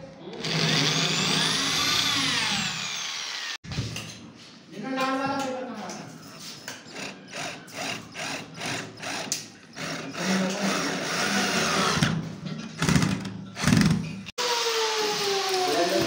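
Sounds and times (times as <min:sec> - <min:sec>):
electric drill driving screw: 0:00.4 - 0:03.6, 0:07.0 - 0:12.2, 0:12.8 - 0:16.0.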